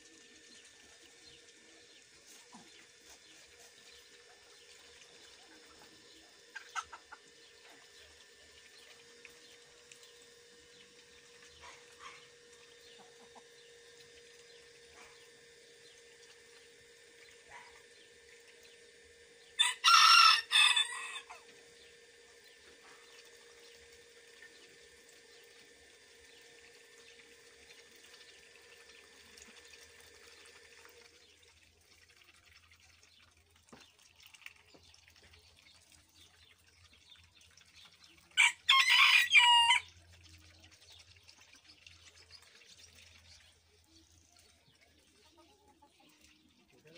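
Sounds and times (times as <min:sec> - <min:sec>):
rooster crowing: 0:19.6 - 0:21.4, 0:38.4 - 0:39.9.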